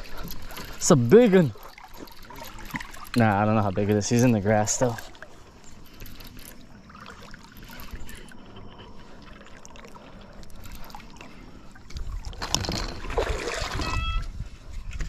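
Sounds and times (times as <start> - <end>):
water splashing against paddle board: 0.0 - 8.2, 9.0 - 14.4
brief high squeak: 13.7 - 14.3.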